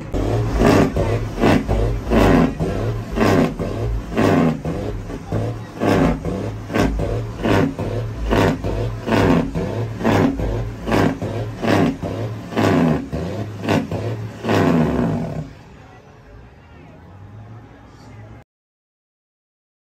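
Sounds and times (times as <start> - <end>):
steady low hum: 0.0 - 15.6
diesel engine revving: 0.0 - 18.4.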